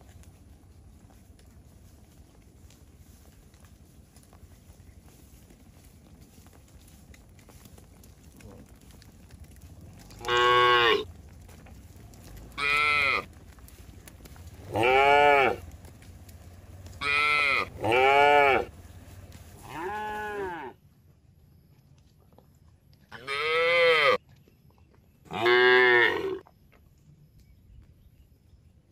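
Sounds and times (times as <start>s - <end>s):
cattle mooing: 10.1s - 11.0s, 12.5s - 13.3s, 14.6s - 15.6s, 17.0s - 18.7s, 25.3s - 26.4s.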